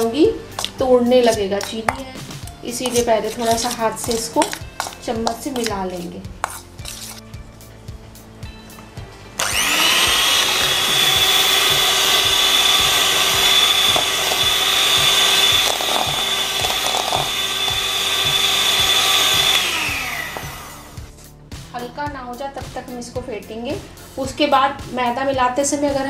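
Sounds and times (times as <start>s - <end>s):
electric hand mixer whining: 9.4s - 21.1s.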